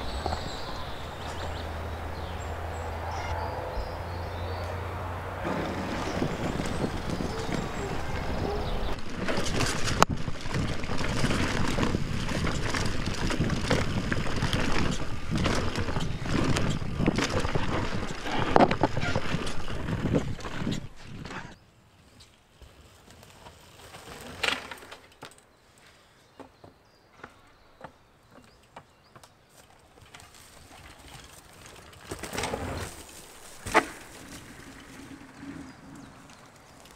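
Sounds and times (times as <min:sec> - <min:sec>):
tyres rumbling on dirt: 0:00.0 - 0:21.6, 0:29.9 - 0:36.9
wind buffeting microphone: 0:00.0 - 0:21.6
bike knocks and rattles: 0:05.4 - 0:21.6, 0:26.4 - 0:36.9.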